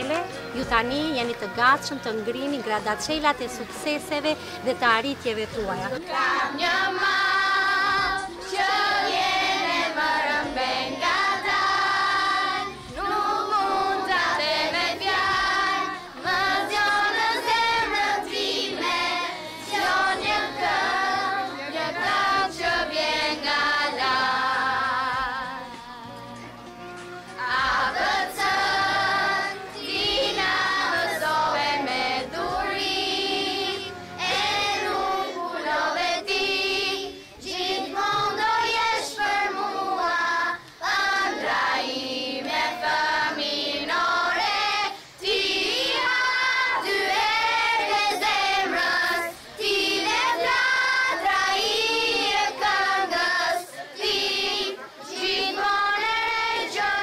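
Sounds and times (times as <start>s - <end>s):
children singing: 5.9s - 26.3s, 27.3s - 57.0s.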